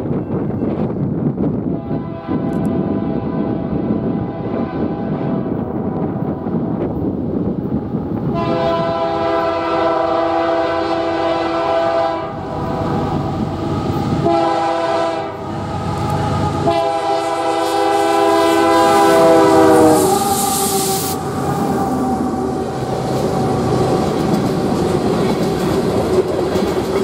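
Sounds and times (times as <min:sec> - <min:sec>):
locomotive engine and wheels rumble: 0:00.0 - 0:01.8, 0:02.4 - 0:27.0
locomotive air horn blasts: 0:01.7 - 0:05.5, 0:08.3 - 0:13.1, 0:13.9 - 0:22.6.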